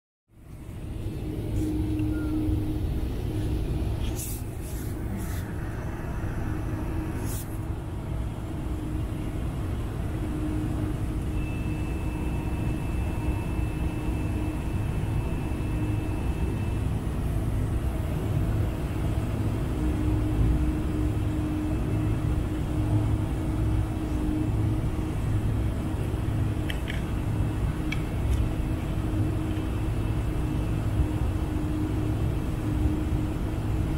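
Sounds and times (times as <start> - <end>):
aircraft cabin rumble and hum: 0.4 - 33.9
thin high tone: 1.0 - 7.6, 10.2 - 17.6.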